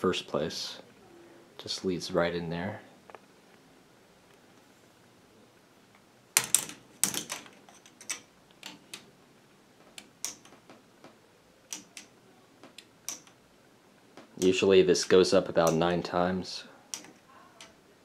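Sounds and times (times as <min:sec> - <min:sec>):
plastic ball machine clicking: 0:11.7 - 0:13.4.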